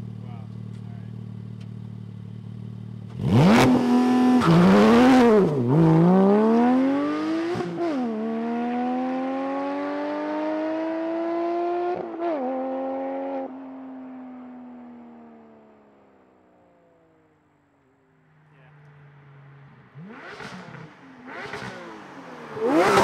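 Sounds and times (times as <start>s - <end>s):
sports car engine revving: 0.8s - 15.6s, 18.5s - 23.0s.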